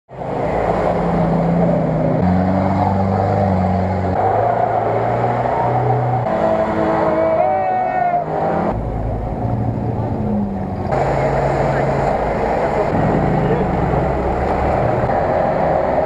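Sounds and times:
off-road engines revving hard: 0.2 - 16.0.

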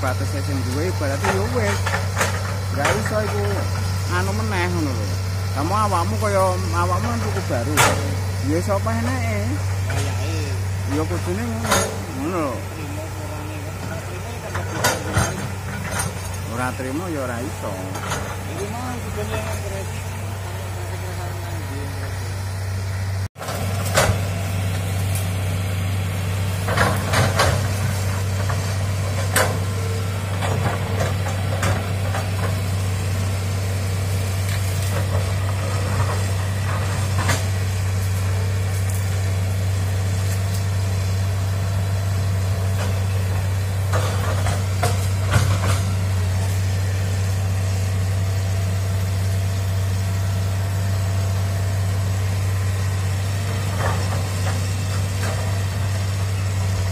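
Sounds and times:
excavator diesel engine running: 0.0 - 56.9
sharp clanks and cracks: 11.6 - 12.2, 14.4 - 16.5, 26.6 - 29.7, 42.7 - 46.0.

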